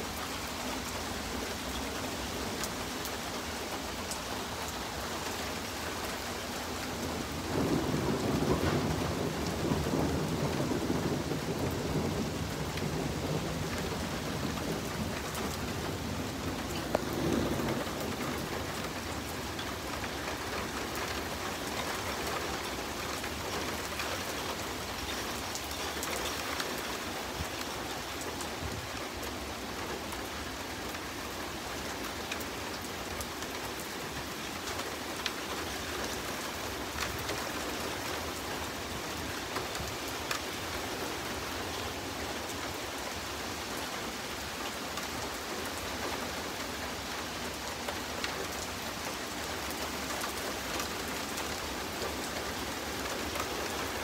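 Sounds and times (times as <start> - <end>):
steady rain falling: 0.0 - 54.0
thunder rumbling: 7.0 - 25.5.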